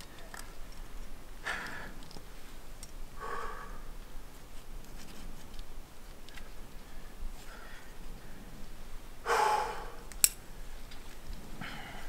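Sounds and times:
person breathing hard: 0:01.4 - 0:02.0, 0:03.2 - 0:04.0, 0:09.2 - 0:10.1, 0:11.6 - 0:12.0
breathy exhales: 0:03.2 - 0:03.9, 0:09.2 - 0:10.1, 0:11.6 - 0:12.0.

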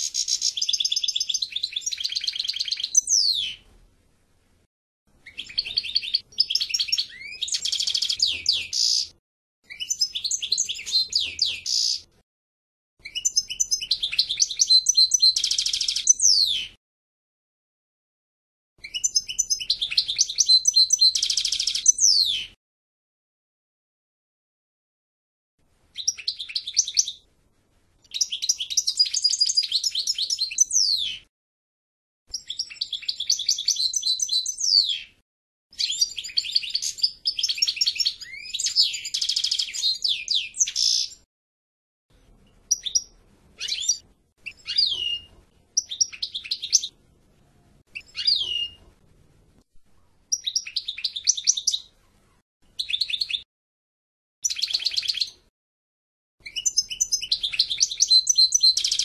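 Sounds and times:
finch twittering song: 0:00.0 - 0:03.6, 0:05.1 - 0:12.1, 0:13.0 - 0:16.8, 0:18.8 - 0:22.6, 0:25.9 - 0:27.2, 0:28.0 - 0:31.3, 0:32.3 - 0:41.2, 0:42.7 - 0:47.0, 0:47.9 - 0:48.8, 0:50.3 - 0:51.9, 0:52.7 - 0:53.5, 0:54.4 - 0:55.5, 0:56.4 - 0:59.0.

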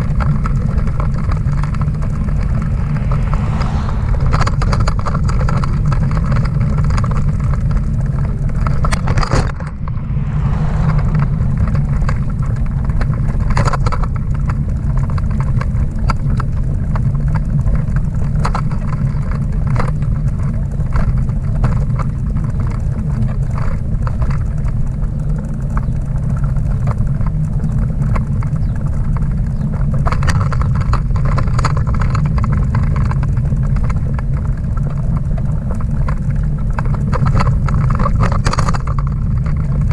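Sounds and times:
trailer rolling over pavement: 0:00.0 - 0:39.9
trailer clicks and rattles: 0:12.1 - 0:39.9.

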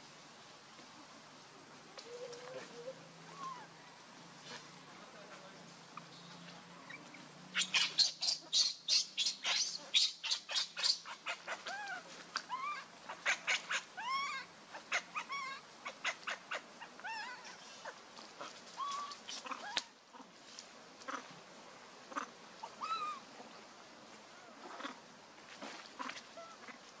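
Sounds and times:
infant monkey screaming: 0:02.2 - 0:03.8, 0:06.8 - 0:20.0, 0:22.1 - 0:23.3.

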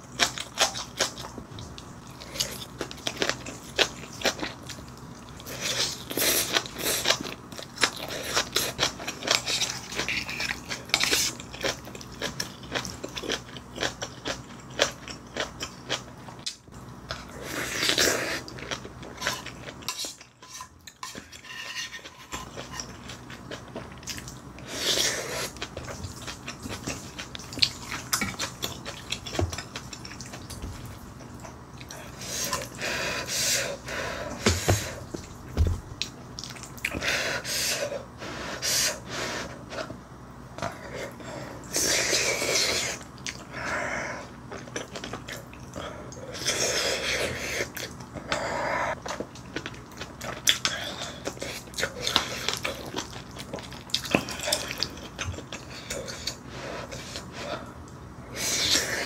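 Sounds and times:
person chewing and slurping: 0:00.1 - 0:16.5, 0:17.1 - 0:40.0, 0:40.6 - 0:57.7.

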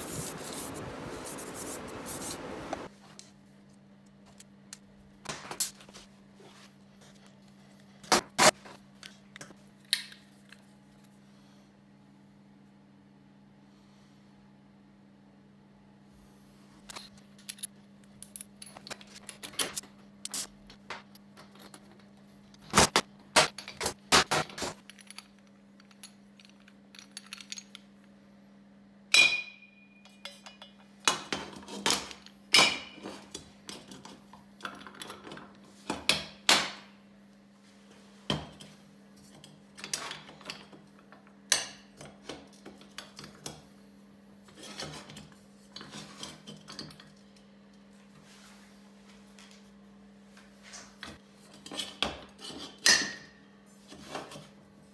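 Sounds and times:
metal parts clinking: 0:24.7 - 0:27.9.

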